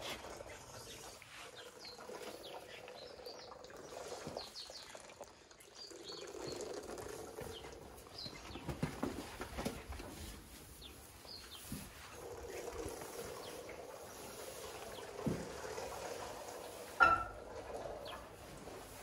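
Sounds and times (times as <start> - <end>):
birds chirping: 5.7 - 9.9, 10.7 - 18.4.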